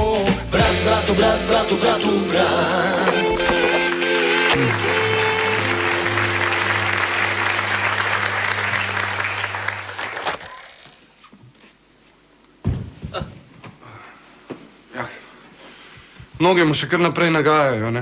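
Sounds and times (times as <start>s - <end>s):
theme song held chord: 0.6s - 9.8s
audience applause: 3.4s - 10.5s.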